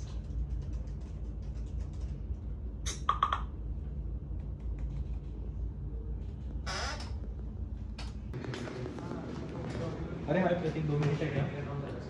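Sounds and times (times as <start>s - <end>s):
laptop keyboard typing: 0.0s - 3.5s, 4.4s - 5.4s
low room hum: 0.0s - 12.0s.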